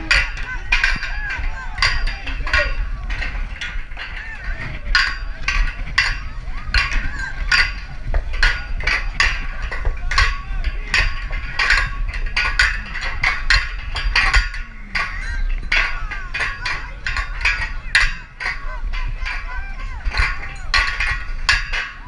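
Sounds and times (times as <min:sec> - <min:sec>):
crowd chatter: 0:00.0 - 0:22.0
metal rings clinking on pegs: 0:00.0 - 0:22.0.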